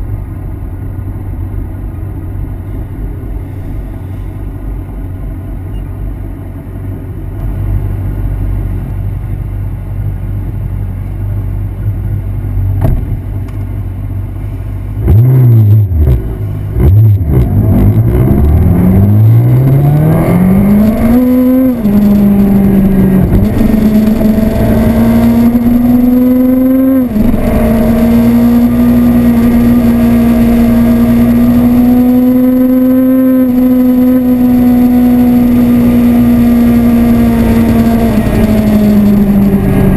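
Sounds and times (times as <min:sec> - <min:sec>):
motorcycle engine revving: 0:15.0 - 0:39.9.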